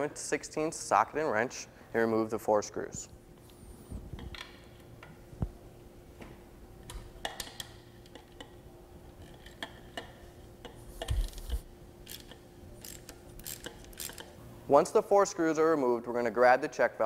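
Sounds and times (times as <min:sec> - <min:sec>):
ratchet wrench clicking: 0:12.0 - 0:14.3.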